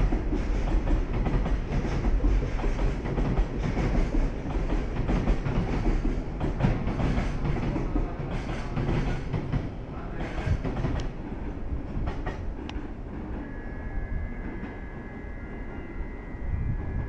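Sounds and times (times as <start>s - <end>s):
wheels clacking over rail joints: 0.0s - 13.4s
freight train wagons rumbling: 0.0s - 17.0s.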